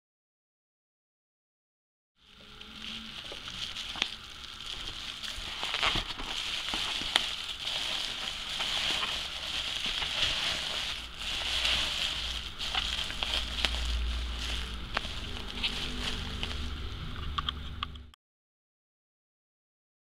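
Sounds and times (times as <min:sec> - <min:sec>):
bubble wrap crinkling: 0:02.2 - 0:17.3.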